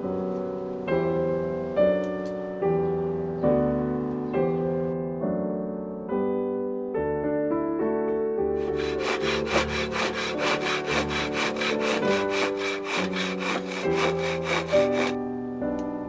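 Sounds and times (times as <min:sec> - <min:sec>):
hand saw cutting wood: 0:08.6 - 0:15.2.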